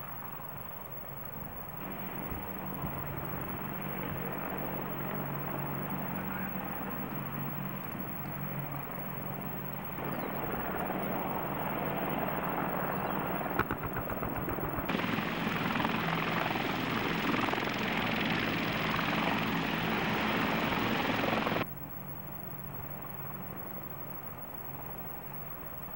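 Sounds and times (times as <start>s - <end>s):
helicopter hovering: 1.3s - 21.7s
helicopter turbine and rotor rush: 1.3s - 21.7s
rapid rotor thumps: 13.5s - 21.6s.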